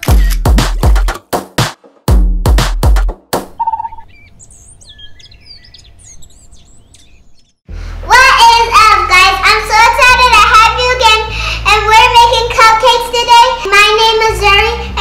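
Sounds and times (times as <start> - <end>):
faint bird chirps: 3.6 - 7.6.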